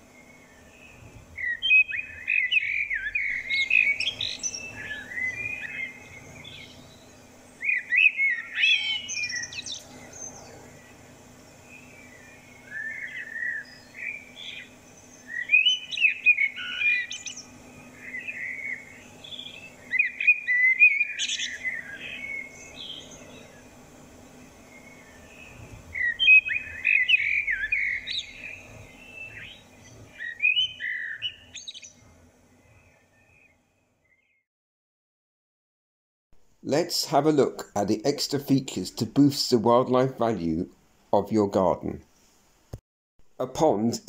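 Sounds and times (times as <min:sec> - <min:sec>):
blackbird singing: 0:00.1 - 0:23.8, 0:24.4 - 0:32.0.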